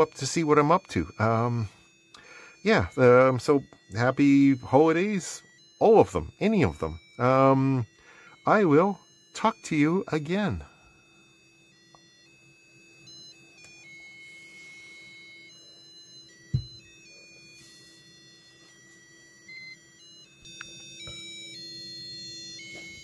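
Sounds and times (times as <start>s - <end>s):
buzzer beeping a melody: 0.0s - 23.0s
dull thump: 16.5s - 16.8s.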